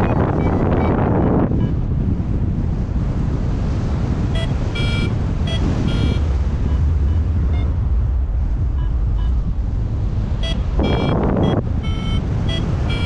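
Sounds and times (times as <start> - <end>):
short electronic beeps: 0.0 - 1.9, 4.4 - 7.8, 8.7 - 9.5, 10.4 - 13.0
wind buffeting microphone: 0.0 - 13.0.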